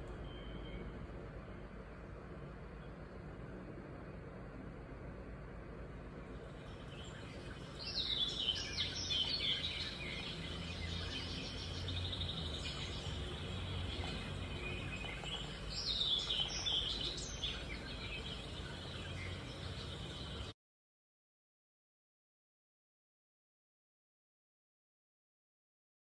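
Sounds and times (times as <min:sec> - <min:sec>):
songbird chirping: 0:00.0 - 0:20.6
steady low hum: 0:00.0 - 0:20.6.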